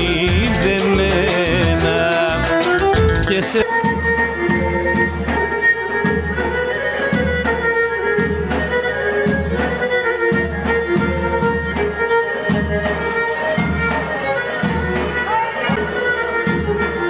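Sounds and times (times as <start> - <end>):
low dance beat: 0.0 - 4.8
bowed string folk melody: 0.0 - 17.0.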